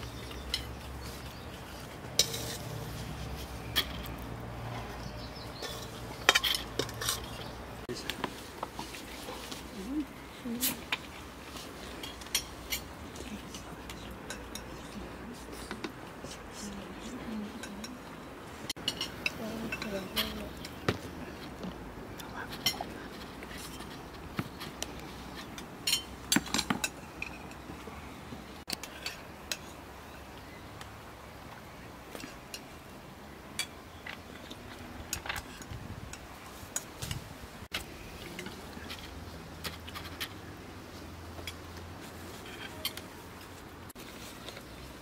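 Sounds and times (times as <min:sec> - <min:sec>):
utensils clinking on dishes: 0:00.0 - 0:04.2, 0:05.1 - 0:07.6, 0:11.9 - 0:15.0, 0:18.7 - 0:20.8, 0:25.4 - 0:27.7, 0:41.3 - 0:43.0.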